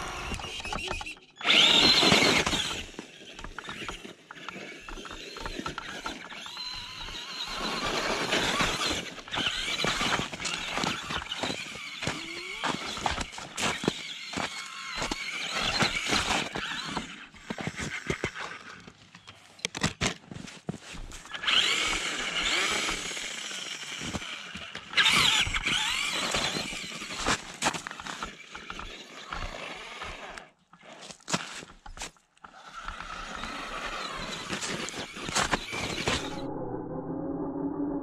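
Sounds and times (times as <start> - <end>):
electric motor whining: 0.0 - 18.8, 21.2 - 30.5, 32.5 - 36.8
clicks and crunches: 23.9 - 29.5, 34.5 - 36.4.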